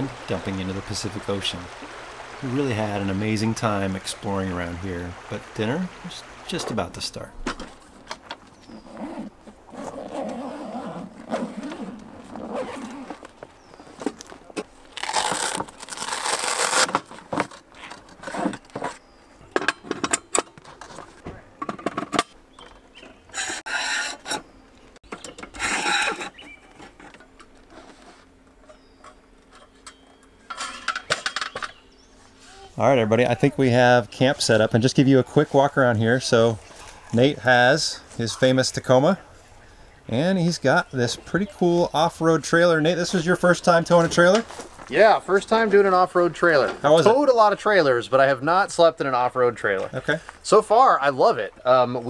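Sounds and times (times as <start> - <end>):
carry bag handled: 8.6 - 19.1
metal parts scraping and knocking: 30.5 - 31.7.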